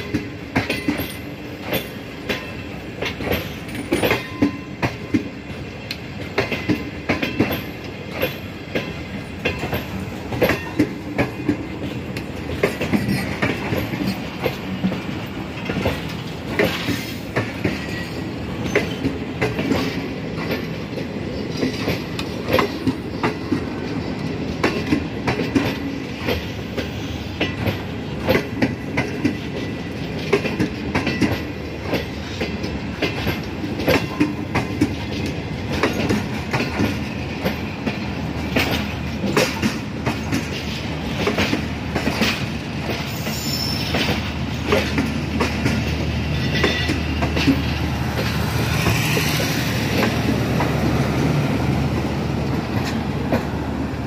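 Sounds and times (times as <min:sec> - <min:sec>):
train rumble: 0:00.0 - 0:54.0
train wheels clacking over rail joints: 0:00.0 - 0:54.0.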